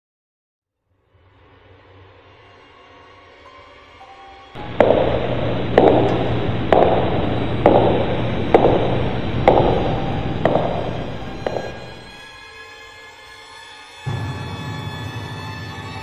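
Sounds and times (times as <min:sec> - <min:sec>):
heavy footsteps with echo: 0:04.6 - 0:12.2
low hum: 0:04.6 - 0:12.2.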